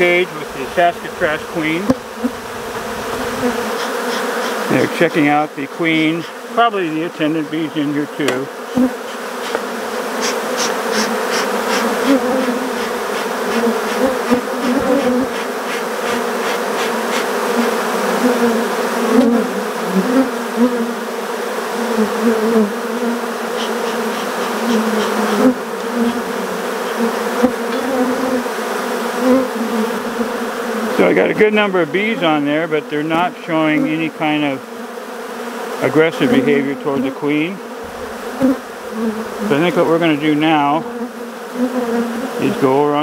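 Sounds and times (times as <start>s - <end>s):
bee colony buzzing: 0.0s - 43.0s
single bees flying close: 0.0s - 43.0s.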